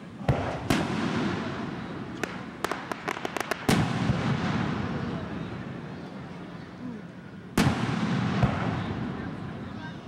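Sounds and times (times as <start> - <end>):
fireworks popping: 0.3 - 5.2.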